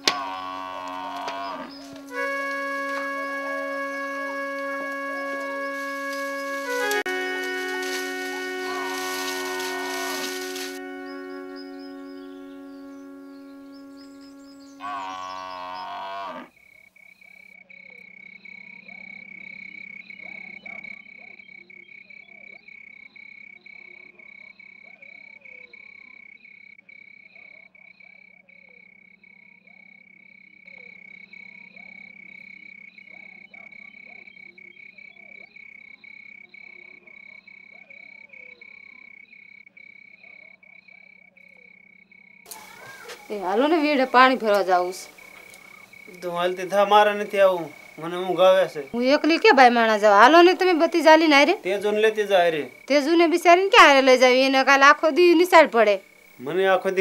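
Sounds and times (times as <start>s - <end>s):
wavering animal call: 0.0s - 16.6s, 42.5s - 57.0s
crickets trilling: 0.0s - 57.0s
frogs croaking: 0.0s - 57.0s.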